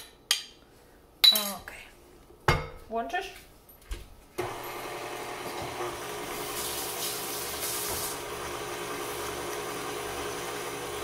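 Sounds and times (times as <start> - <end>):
stand mixer running: 4.4 - 11.0.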